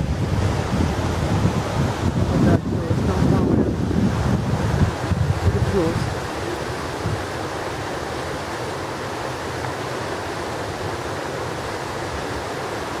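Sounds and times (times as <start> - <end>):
wind buffeting microphone: 0.0 - 8.7
water rushing over rocks: 0.0 - 13.0.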